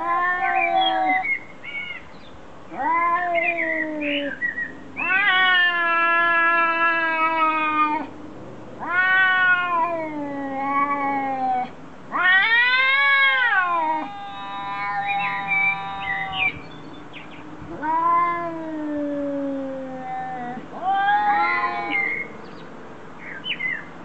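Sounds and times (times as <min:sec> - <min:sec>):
cat yowling: 0:00.0 - 0:01.4, 0:02.7 - 0:04.4, 0:05.0 - 0:08.1, 0:08.8 - 0:16.6, 0:17.7 - 0:22.3.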